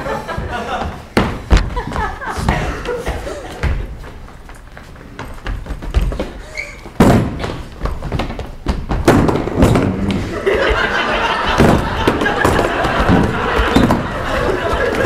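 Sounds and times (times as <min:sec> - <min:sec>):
metal chairs thudding on stage floor: 0:05.8 - 0:15.0.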